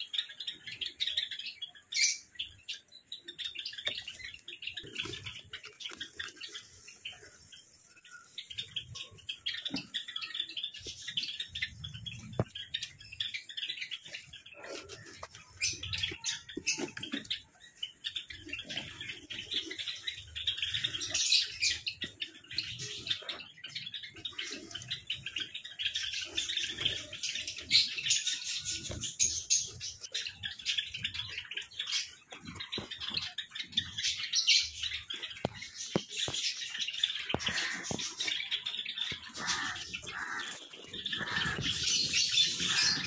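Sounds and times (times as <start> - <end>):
sparrows chirping: 0.0 - 43.0.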